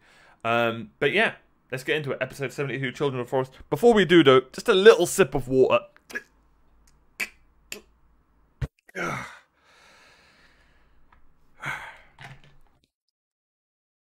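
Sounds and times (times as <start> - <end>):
breathy exhale: 9.0 - 11.0, 11.6 - 12.3.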